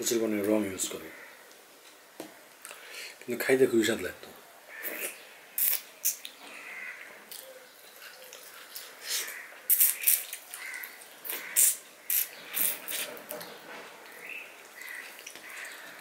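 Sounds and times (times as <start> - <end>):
man eating and licking fingers: 4.8 - 6.4, 7.3 - 16.0.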